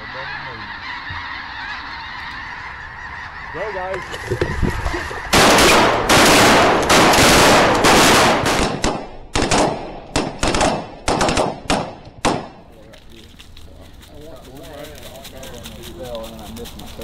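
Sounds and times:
shotgun fire: 5.3 - 12.6.

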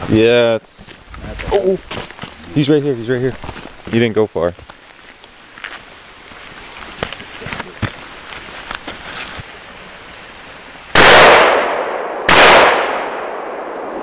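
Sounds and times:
light rustling and ticks: 0.7 - 9.5
shotgun shots with echo: 11.0 - 14.0.

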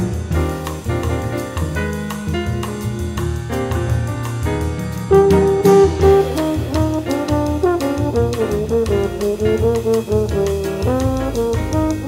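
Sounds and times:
bass line: 0.0 - 12.0
ticking beat: 0.0 - 12.0
sliding horn melody: 5.1 - 12.0.

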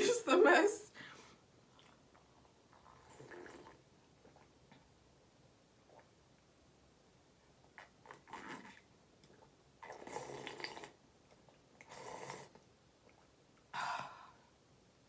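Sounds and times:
slurping sips of broth: 2.8 - 3.8, 8.1 - 8.8, 9.8 - 11.0, 11.8 - 12.6.

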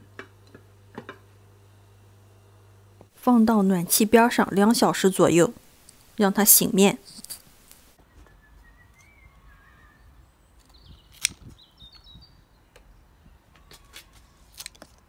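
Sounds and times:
faint bird chirps: 8.0 - 14.0
scissors snipping stalks: 10.6 - 11.6, 13.9 - 14.9.

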